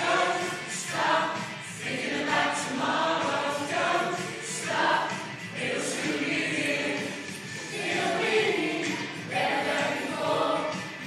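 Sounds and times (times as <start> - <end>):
amateur choir singing: 0.0 - 11.0.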